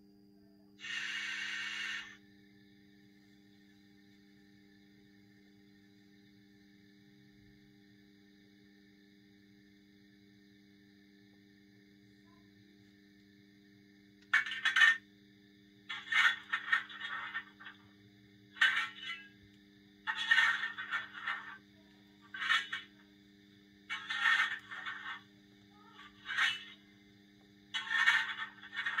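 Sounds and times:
faint steady hum: 0.0 - 29.0
model locomotive steam sounds: 0.8 - 2.2.

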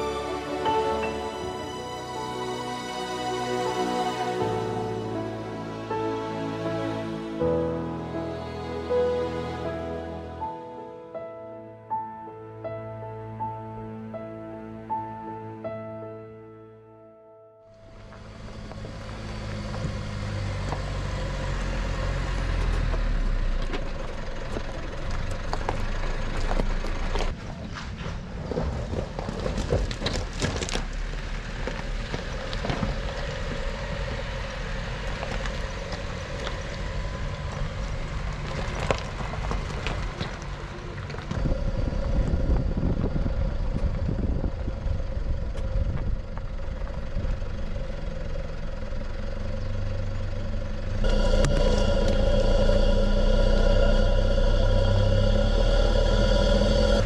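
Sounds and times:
pickup engine running off-road: 17.8 - 57.0.

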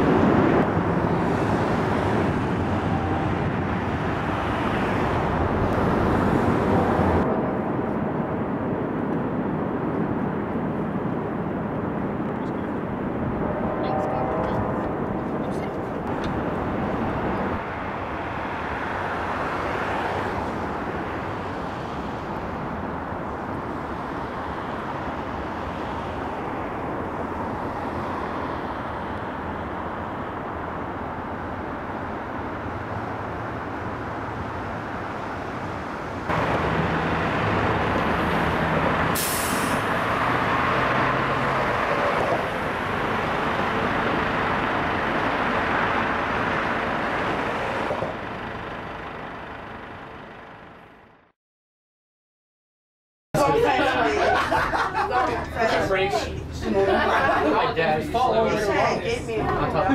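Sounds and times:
vehicle engine low drone: 0.0 - 51.3
city traffic noise: 0.0 - 51.4, 53.4 - 59.9
brief sharp hiss: 39.2 - 39.9.

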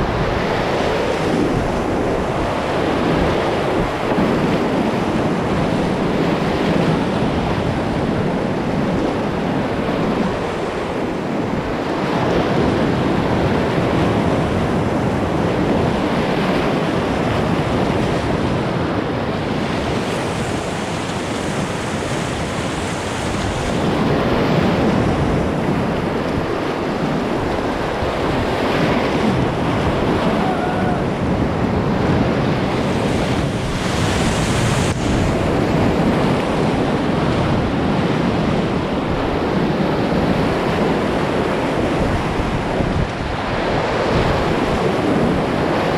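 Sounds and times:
river rapids rushing: 17.6 - 45.9.

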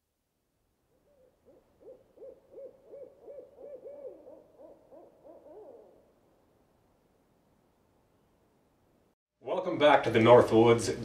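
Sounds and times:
owl hooting: 0.9 - 6.2
lower owl hooting: 0.9 - 6.6.

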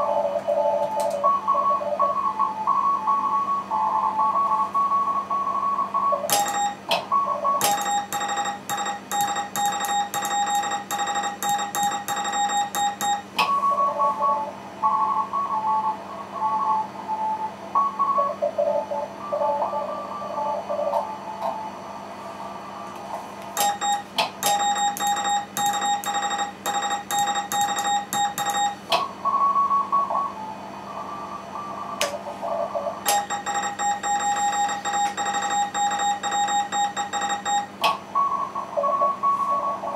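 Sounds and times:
morse code tone: 6.3 - 15.9, 23.6 - 28.9, 33.1 - 39.8.

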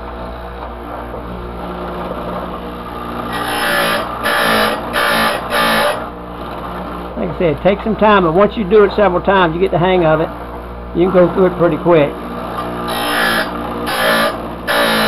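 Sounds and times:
grinder motor running: 0.0 - 8.4, 9.9 - 15.0
grinding wheel on metal tooth: 3.1 - 6.1, 12.4 - 15.0.

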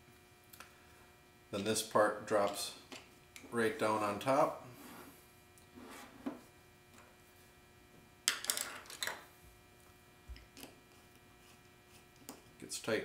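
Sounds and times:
small parts clicking and clattering: 8.3 - 9.2.

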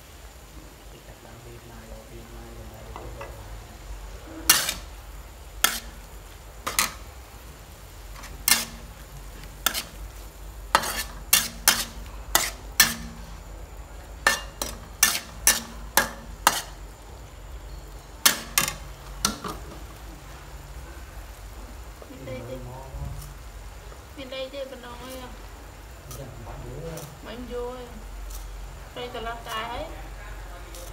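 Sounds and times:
spatula scraping metal wok: 4.2 - 13.5, 14.1 - 16.9, 17.7 - 19.9.

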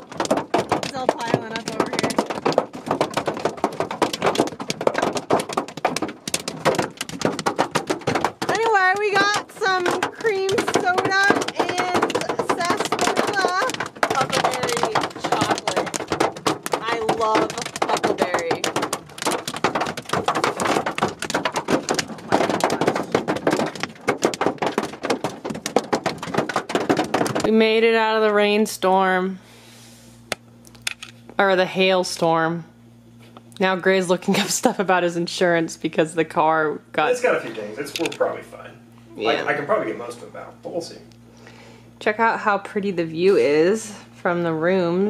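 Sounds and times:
hail pelting car roof: 0.0 - 28.3.

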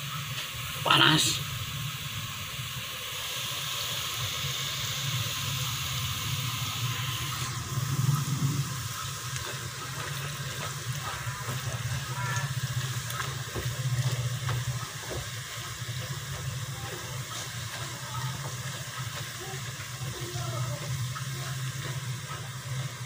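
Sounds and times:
dough deep-frying in oil: 0.0 - 23.0
steady low hum: 4.1 - 23.0
oil pops and crackles: 9.0 - 20.2.

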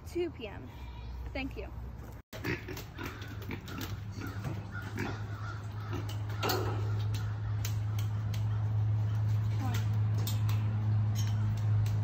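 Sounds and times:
pig grunting: 2.4 - 7.6.

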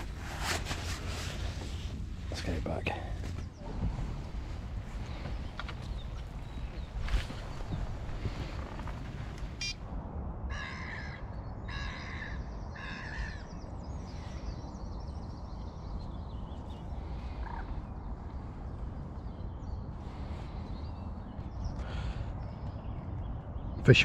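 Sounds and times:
outdoor background noise: 0.0 - 24.0
bird calling harshly: 9.5 - 9.8.

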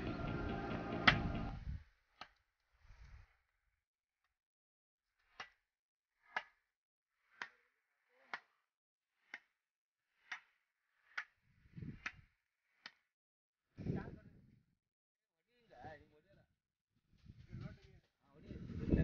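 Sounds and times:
low rumble: 0.0 - 1.8.

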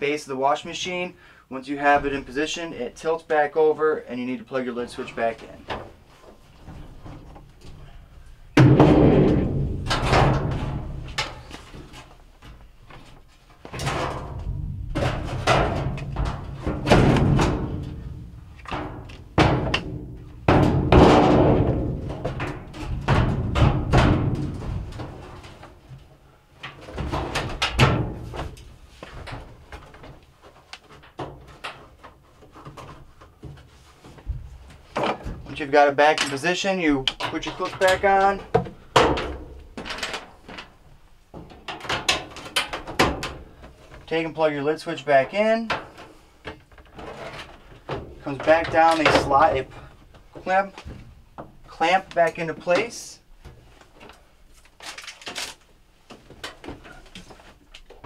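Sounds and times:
hollow ring of metal panels: 8.6 - 11.5, 13.7 - 25.4
metal cabinet bumping and scraping: 8.6 - 12.2, 13.2 - 26.0, 26.7 - 30.2, 45.6 - 53.6.

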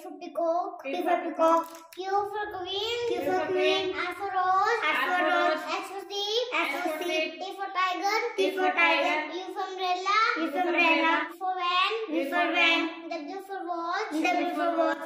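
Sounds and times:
girl chanting sing-song: 3.0 - 4.0, 4.8 - 5.8, 6.6 - 7.5, 8.4 - 9.6, 10.4 - 11.4, 12.0 - 13.1, 14.0 - 15.0.

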